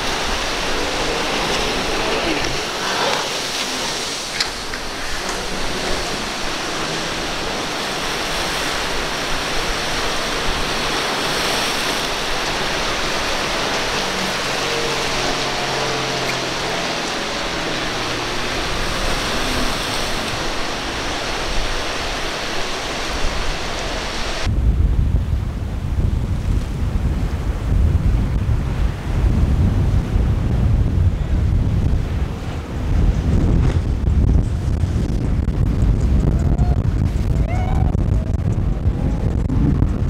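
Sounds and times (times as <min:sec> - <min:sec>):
faint boat engine hum: 0:00.0 - 0:24.4
surf rushing: 0:00.0 - 0:24.6, 0:27.2 - 0:40.0.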